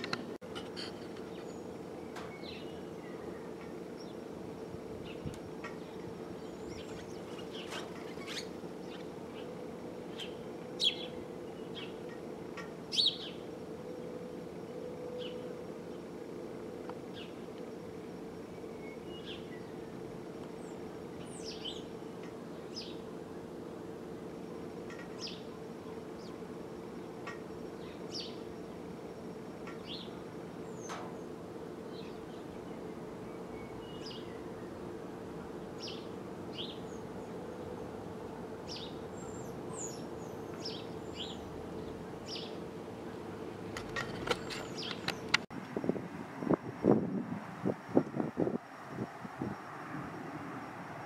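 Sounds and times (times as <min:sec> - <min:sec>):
small birds chirping: 0:00.0 - 0:13.5, 0:18.5 - 0:23.5, 0:24.8 - 0:37.4, 0:38.6 - 0:43.2, 0:44.2 - 0:45.4
steady low hum: 0:00.0 - 0:51.0.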